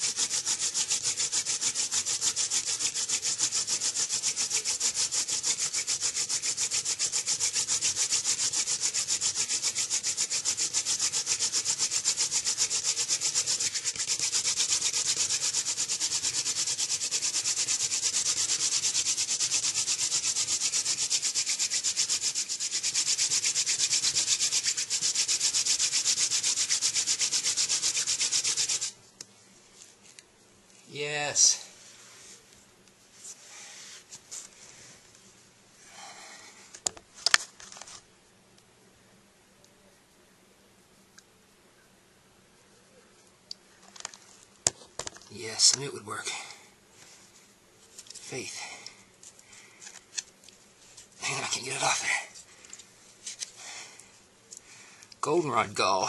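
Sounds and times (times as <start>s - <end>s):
hand drill rasping on wood: 0.0s - 28.9s.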